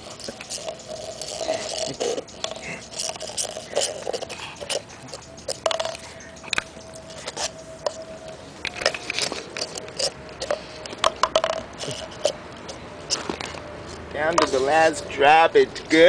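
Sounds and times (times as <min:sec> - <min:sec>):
dog licking: 0:00.0 - 0:07.5
paper cup scraping on concrete: 0:00.0 - 0:15.0.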